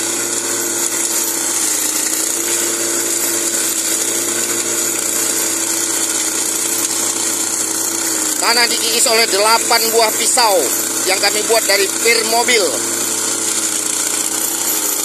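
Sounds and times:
rotary blades scraping soil: 0:00.0 - 0:15.0
petrol engine running under load: 0:01.5 - 0:15.0.

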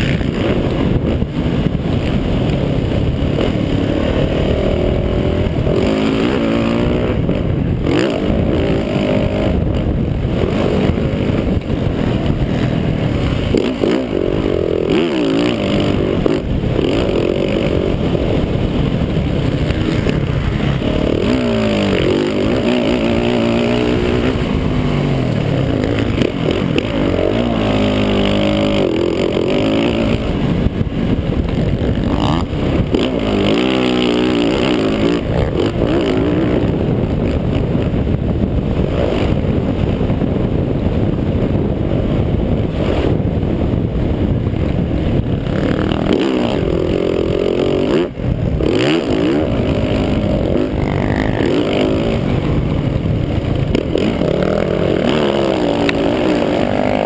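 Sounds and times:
motocross bike engine revving: 0:00.0 - 0:57.0.

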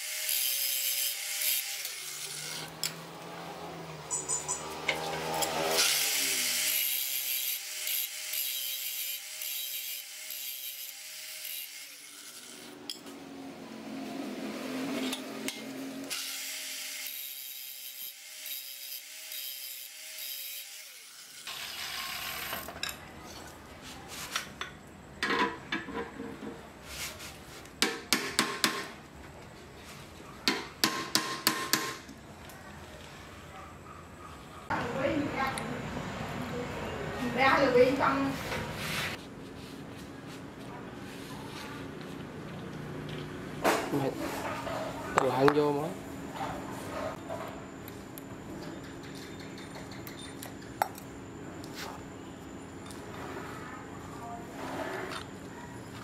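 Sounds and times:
angle grinder grinding metal: 0:00.0 - 0:13.1, 0:14.8 - 0:22.8.

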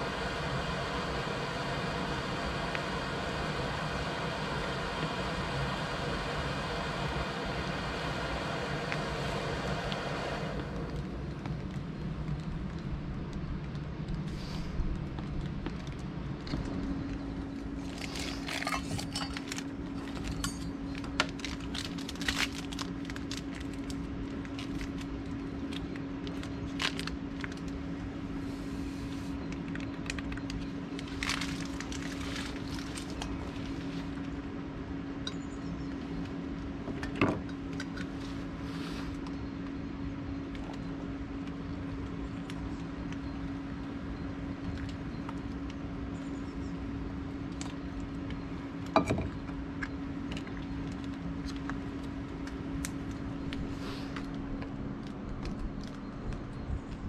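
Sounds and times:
steady low hum: 0:00.0 - 0:57.0
camping gear clicks and rustling: 0:15.0 - 0:25.0.

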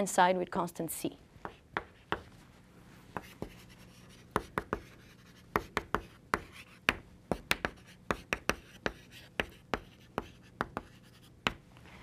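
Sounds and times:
chalk tapping on blackboard: 0:01.4 - 0:02.3, 0:03.2 - 0:11.6.

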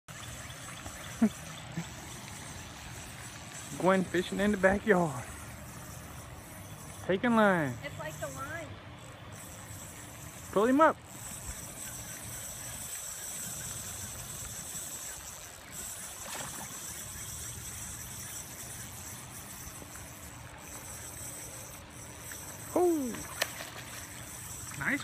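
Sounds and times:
high insect buzz: 0:00.1 - 0:25.0
fish splashing: 0:12.0 - 0:25.0
person exclaiming: 0:22.7 - 0:23.3.

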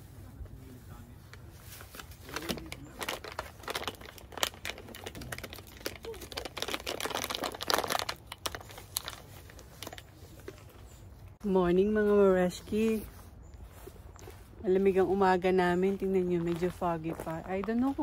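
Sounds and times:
crinkling and rustling: 0:00.3 - 0:11.4.

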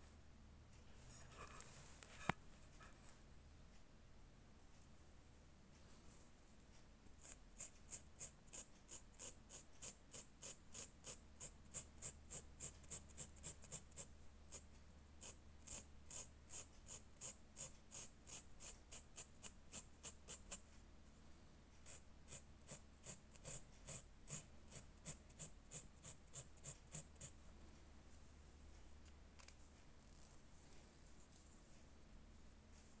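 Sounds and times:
marker tip scratching on fabric: 0:07.2 - 0:14.6, 0:15.2 - 0:20.6, 0:21.8 - 0:27.4.

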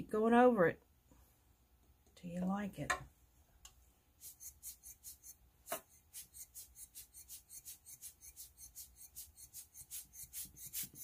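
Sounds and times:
rubber bulb air blower puffing: 0:04.2 - 0:11.0.

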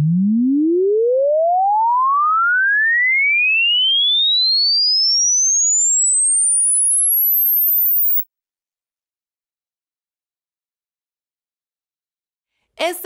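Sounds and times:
rising sine-wave test tone: 0:00.0 - 0:08.2.

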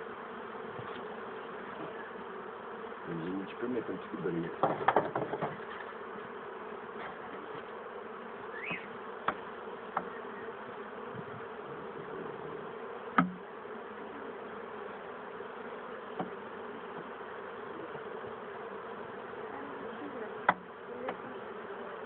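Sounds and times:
honeybees buzzing: 0:00.0 - 0:22.0
knocks on wooden hive box: 0:04.5 - 0:05.8, 0:09.2 - 0:10.2, 0:13.1 - 0:13.5, 0:16.1 - 0:17.2, 0:20.4 - 0:21.2.

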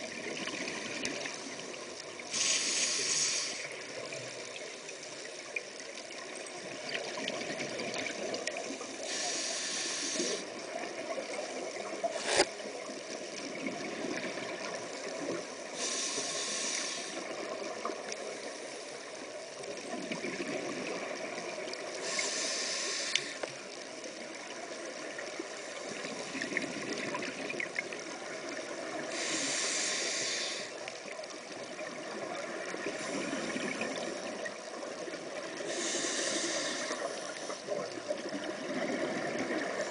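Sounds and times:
steady water hiss: 0:00.0 - 0:39.9
exhaled bubbles rushing underwater: 0:06.1 - 0:09.3, 0:10.3 - 0:15.8, 0:19.7 - 0:22.2, 0:31.0 - 0:39.9.

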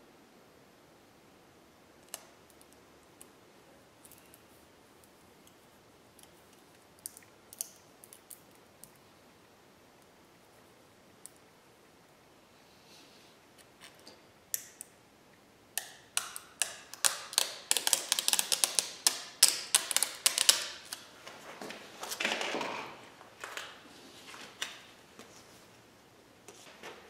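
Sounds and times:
decal paper clicks and crackles: 0:16.1 - 0:21.1.

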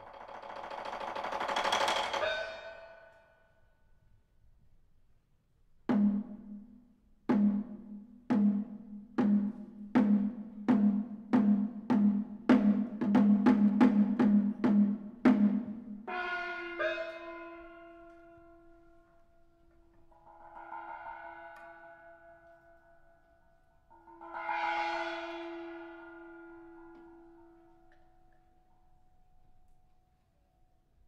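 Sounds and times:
ringing percussion strokes: 0:00.0 - 0:03.4, 0:16.0 - 0:29.1.

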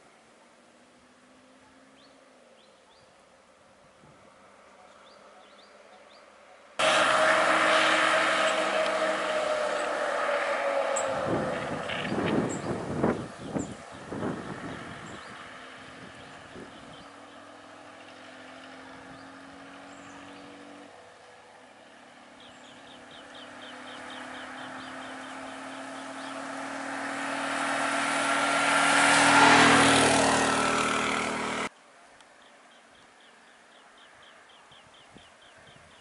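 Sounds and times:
auto-rickshaw engine running: 0:06.8 - 0:31.7.

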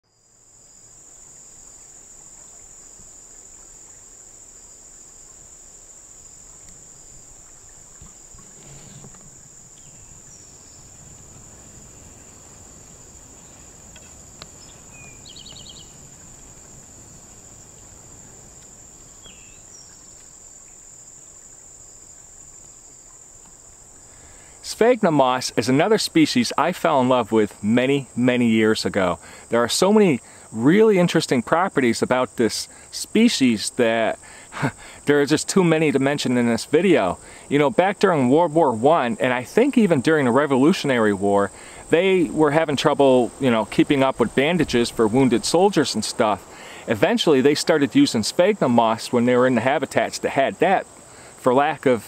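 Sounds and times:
high-pitched insect trill: 0:00.0 - 0:51.9
faint bird chirps: 0:06.4 - 0:16.4, 0:17.6 - 0:22.3.

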